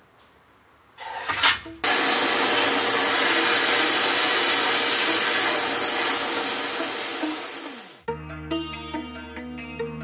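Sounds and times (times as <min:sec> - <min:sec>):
sandblast gun hissing: 0:01.8 - 0:08.1.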